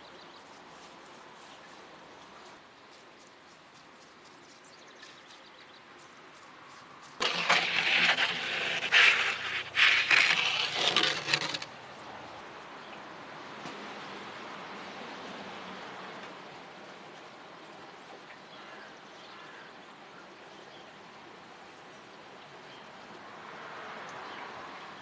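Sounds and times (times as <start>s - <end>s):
peel scraping oven floor: 7.2s - 11.7s.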